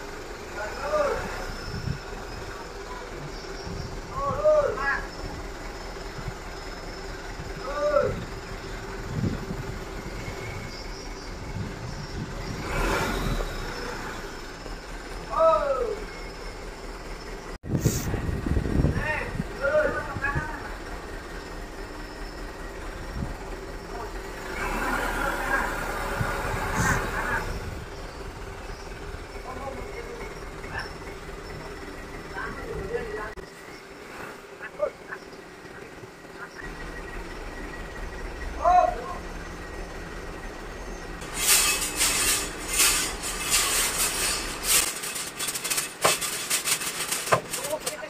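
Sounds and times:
vehicle engine running: 0.0s - 48.0s
loud rough noise: 39.3s - 48.0s
rasping scrapes by hand: 41.2s - 47.6s.

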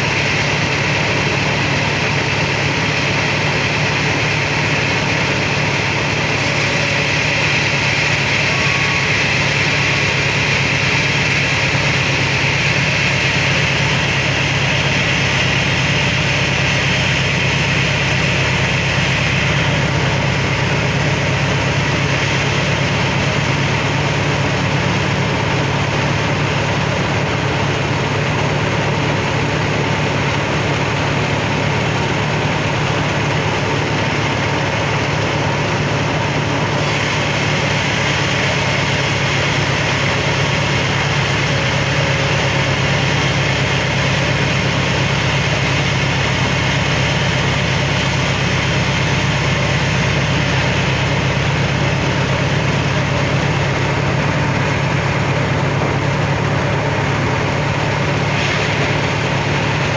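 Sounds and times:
band sawmill sawing wood: 6.2s - 19.8s.

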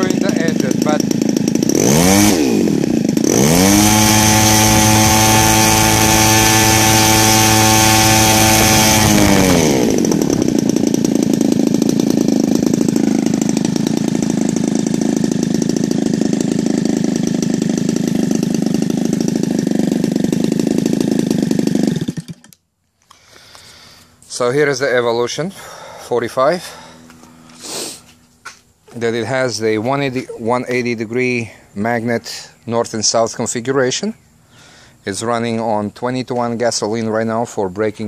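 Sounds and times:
model aircraft engine revving: 0.0s - 22.6s.

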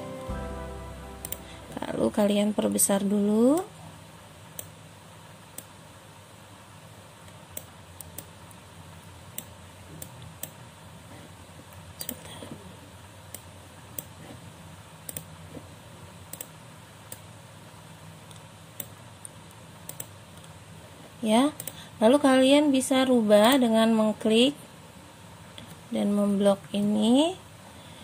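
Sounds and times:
steady low hum: 0.0s - 28.0s
computer mouse clicks: 4.5s - 4.8s, 5.5s - 5.8s, 7.2s - 8.6s, 9.3s - 10.6s, 11.7s - 12.3s, 13.3s - 14.4s, 15.0s - 15.3s, 16.3s - 17.3s, 18.2s - 20.6s, 21.6s - 21.8s.

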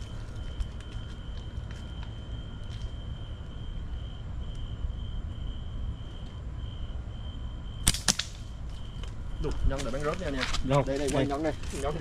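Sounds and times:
slingshot sharp cracks: 7.8s - 8.6s.

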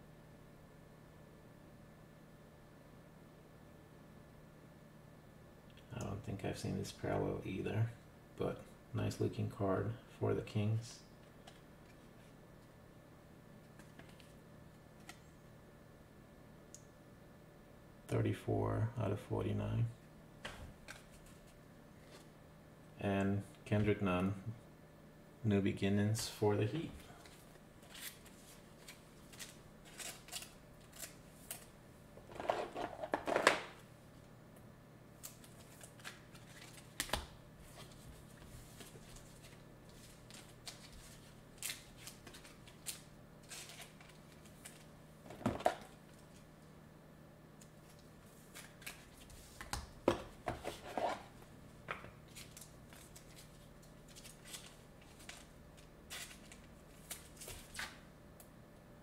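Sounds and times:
low steady hum: 0.0s - 59.0s
foil wrapper crinkling: 27.2s - 31.7s, 35.2s - 38.0s, 38.8s - 44.9s, 52.3s - 58.0s
cards clicking and snipping: 27.9s - 31.7s.

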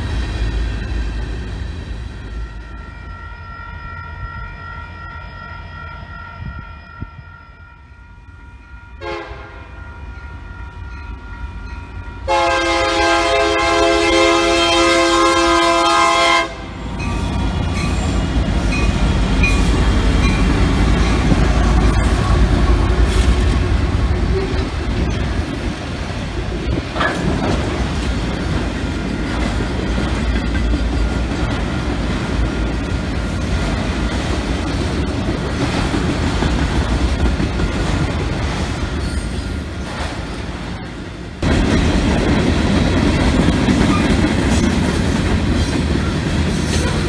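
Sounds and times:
locomotives and wheels rumbling: 0.0s - 47.0s
locomotive air horn blasts: 9.0s - 9.8s, 12.3s - 16.8s.

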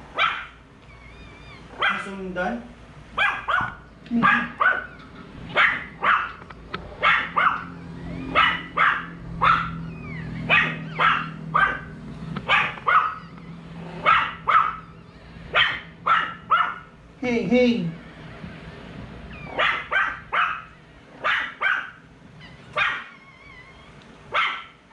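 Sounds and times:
dog barking: 0.1s - 0.6s, 1.7s - 2.1s, 3.2s - 6.4s, 7.0s - 13.3s, 14.0s - 17.0s, 19.4s - 22.0s, 22.8s - 23.2s, 24.3s - 24.9s.

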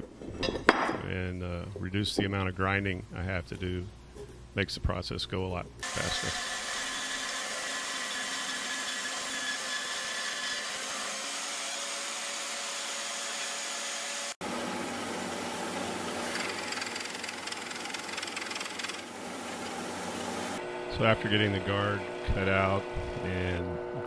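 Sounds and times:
band saw cutting metal: 5.8s - 14.4s
band saw running: 5.8s - 14.4s, 15.2s - 19.2s.

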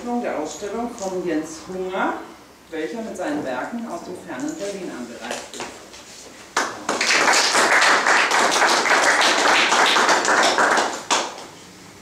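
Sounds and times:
audience applauding: 6.6s - 11.4s.

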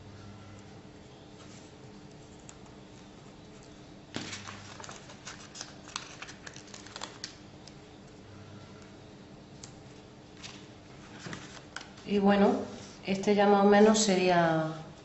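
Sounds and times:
paper crinkling and rustling: 1.4s - 7.8s, 10.4s - 12.0s.

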